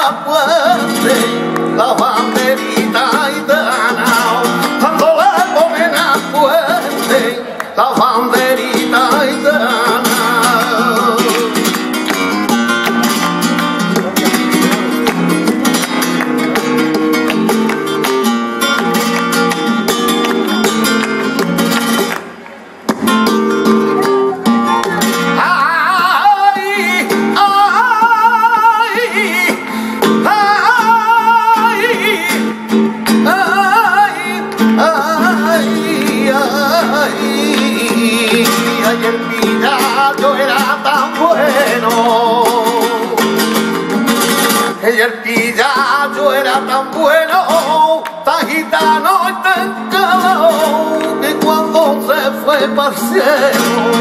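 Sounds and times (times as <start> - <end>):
man singing: 0.0 - 13.3, 25.2 - 54.0
acoustic guitar strumming: 0.0 - 54.0
hand-clapping: 1.1 - 4.7, 6.9 - 8.0, 9.0 - 23.0, 32.3 - 44.8, 47.5 - 52.0.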